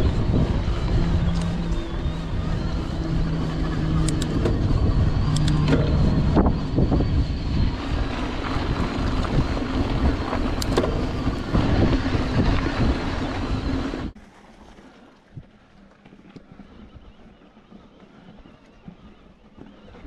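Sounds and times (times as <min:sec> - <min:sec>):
bike knocking and rattling: 0:00.0 - 0:14.1
electric motor hum: 0:00.0 - 0:14.2, 0:15.4 - 0:20.0
wind buffeting microphone: 0:00.0 - 0:14.2.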